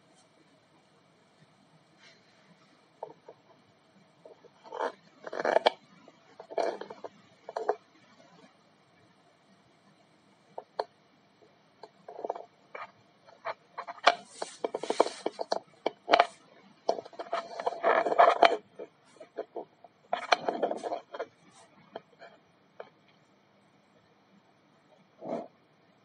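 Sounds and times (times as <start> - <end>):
rubbing and scraping: 12.1 - 22.9.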